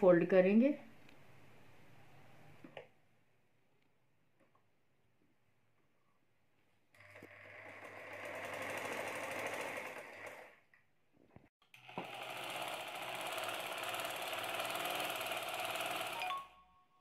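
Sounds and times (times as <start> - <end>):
sewing machine stitching: 7.0 - 10.6, 11.8 - 16.4.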